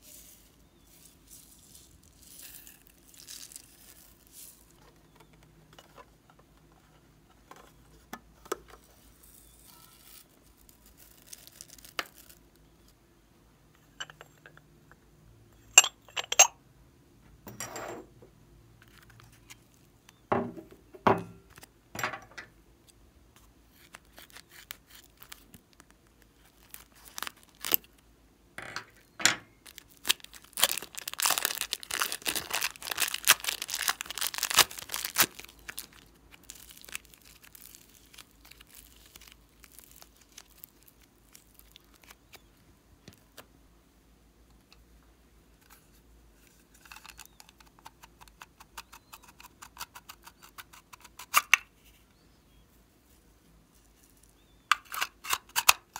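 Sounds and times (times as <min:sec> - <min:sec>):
plastic wrapper crinkling and tearing: 0:00.2 - 0:04.9, 0:09.0 - 0:12.8, 0:23.7 - 0:28.0, 0:29.6 - 0:43.5, 0:46.8 - 0:48.0
plastic container clicks and rustles: 0:29.7 - 0:38.9.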